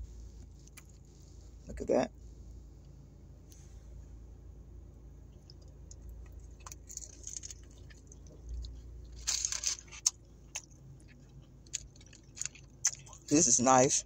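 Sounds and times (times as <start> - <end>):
person chewing crunchy food: 5.3 - 13.3
paper wrapper crinkling: 9.1 - 10.2.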